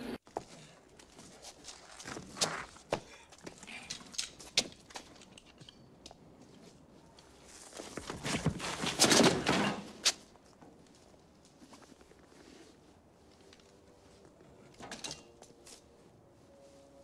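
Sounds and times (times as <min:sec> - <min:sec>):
scuffling on a floor: 0:10.7 - 0:17.0.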